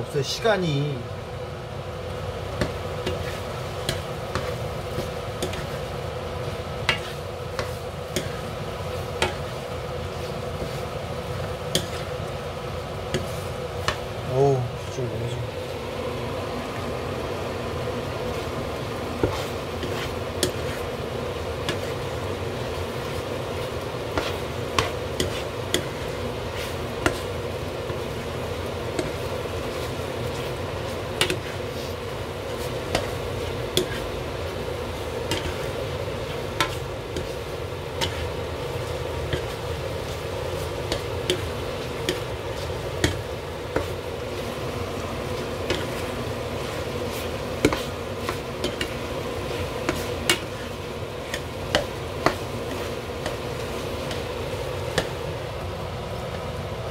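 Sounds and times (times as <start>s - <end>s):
range hood fan hum: 0.0s - 56.9s
sauce simmering: 1.0s - 14.8s, 15.4s - 56.9s
spatula stirring in frying pan: 1.8s - 14.3s, 15.4s - 56.9s
spatula knocking against pan: 47.6s - 49.0s.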